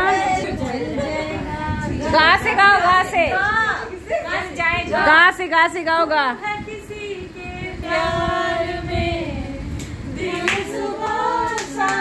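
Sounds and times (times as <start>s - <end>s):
person singing unaccompanied: 0.0s - 5.3s, 6.4s - 12.0s
sharp claps: 9.8s - 10.7s, 11.4s - 12.0s.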